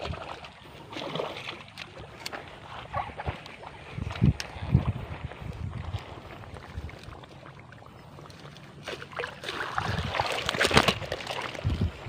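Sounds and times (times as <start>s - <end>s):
grass and brush rustling: 0.0s - 12.0s.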